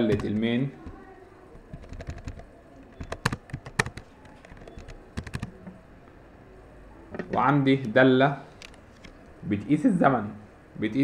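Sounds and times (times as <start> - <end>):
typing on computer keyboard: 0.0 - 1.0, 1.6 - 5.7.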